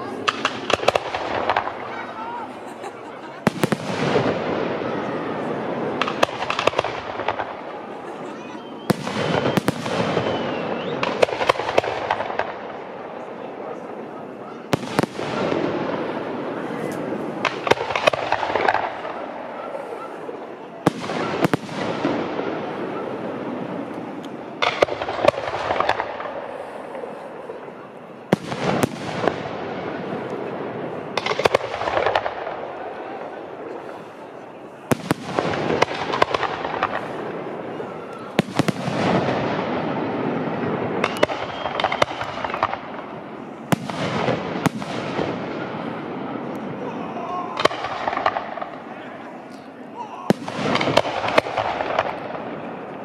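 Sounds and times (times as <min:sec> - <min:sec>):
crackling fireworks pops: 0:00.0 - 0:53.0
fireworks bangs: 0:00.0 - 0:53.0
firework shells bursting: 0:40.8 - 0:45.4, 0:50.3 - 0:52.5.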